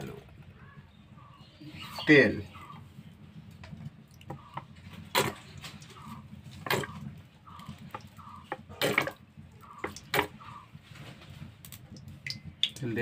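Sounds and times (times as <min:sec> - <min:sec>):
oil pouring and splashing: 0:03.4 - 0:13.0.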